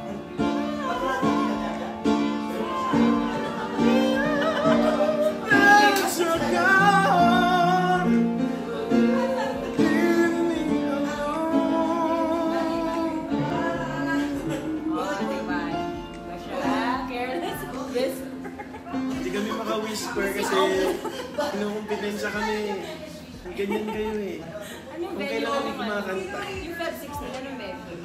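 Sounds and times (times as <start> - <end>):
people singing: 0.0 - 17.6
acoustic guitar: 0.0 - 23.4
piano: 0.0 - 23.6.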